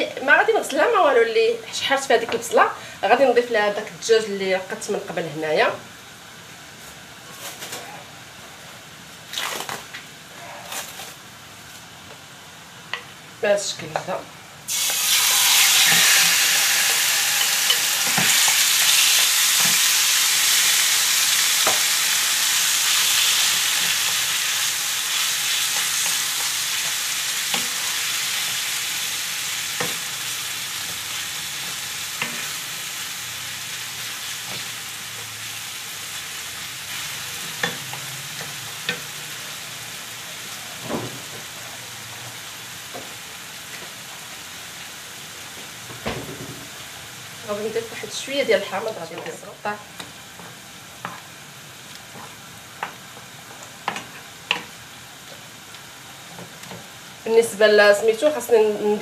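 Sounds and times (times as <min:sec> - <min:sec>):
chicken sizzling in oil: 0:14.0 - 0:59.0.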